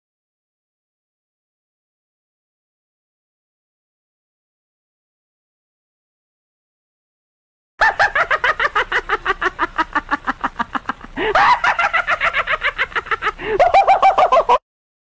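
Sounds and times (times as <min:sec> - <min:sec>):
rapid laughter: 0:07.8 - 0:14.6.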